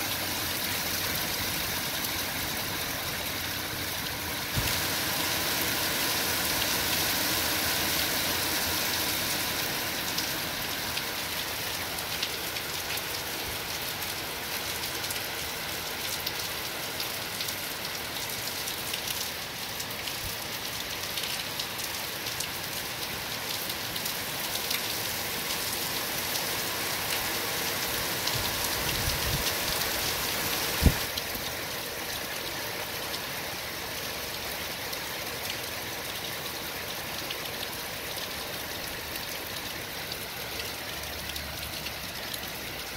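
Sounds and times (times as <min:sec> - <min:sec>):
heavy rain on paving and trees: 0:00.0 - 0:42.9.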